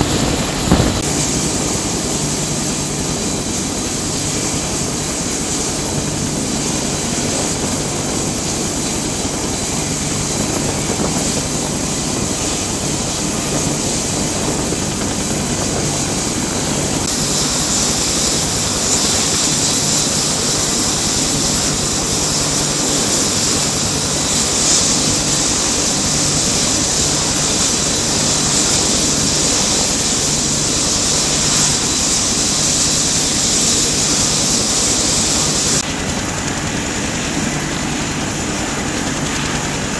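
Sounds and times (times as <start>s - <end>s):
turbine engines running: 0.0s - 39.9s.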